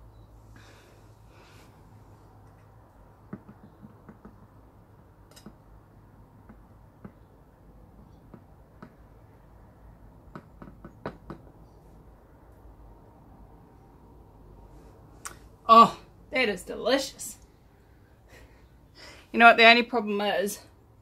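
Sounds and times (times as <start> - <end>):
small taps and clicks: 3.3 - 4.6.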